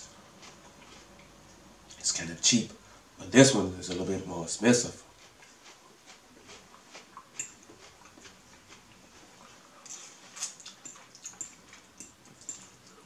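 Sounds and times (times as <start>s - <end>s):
crunchy chewing of celery: 0.0s - 2.0s, 4.8s - 13.0s.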